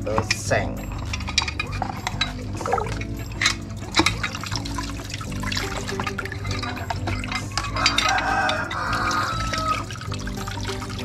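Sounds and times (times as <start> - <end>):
metal parts clicking: 0.0 - 4.7, 6.3 - 9.6
liquid splashing and dripping: 0.4 - 11.0.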